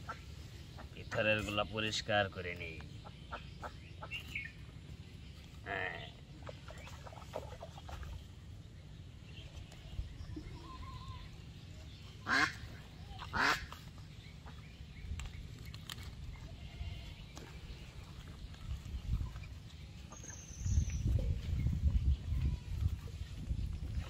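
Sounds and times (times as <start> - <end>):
farm animal calls: 12.2 - 14.7, 16.2 - 18.1.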